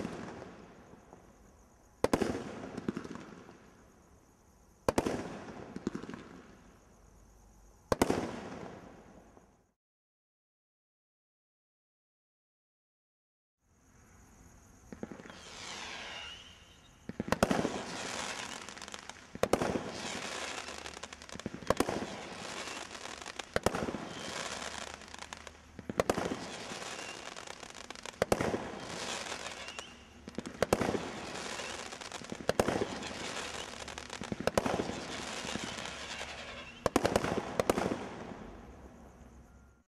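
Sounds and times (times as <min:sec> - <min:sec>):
fizzing of bursting stars: 0:14.9 - 0:37.0.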